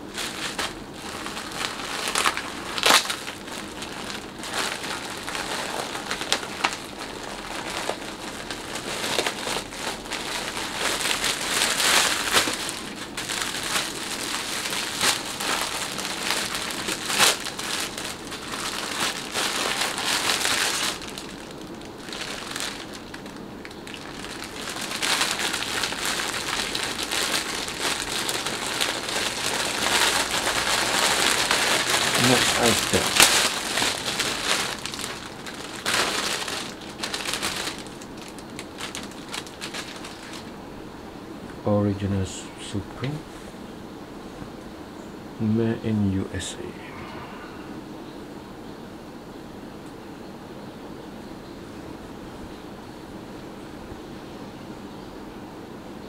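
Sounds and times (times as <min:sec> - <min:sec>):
plastic wrapping crinkling: 0:00.0 - 0:40.6.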